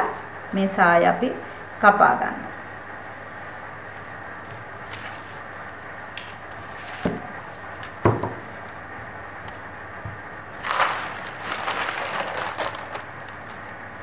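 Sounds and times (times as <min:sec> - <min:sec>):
paper and cloth rustling: 0:04.8 - 0:05.4, 0:06.6 - 0:08.0, 0:10.6 - 0:13.1.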